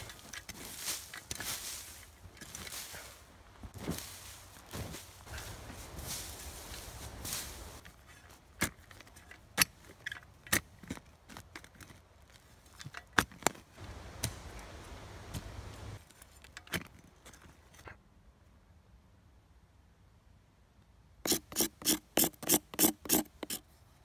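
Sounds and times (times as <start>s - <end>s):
footsteps through dry leaves: 0.0s - 7.8s
scrape of earth and leaves: 0.0s - 10.0s
metal shovel chopping into soil: 21.3s - 23.6s.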